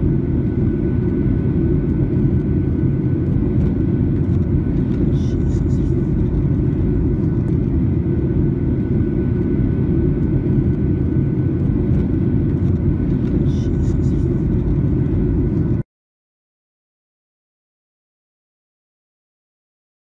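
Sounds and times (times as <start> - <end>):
airliner cabin rumble: 0.0 - 15.8
faint steady whine: 0.0 - 15.8.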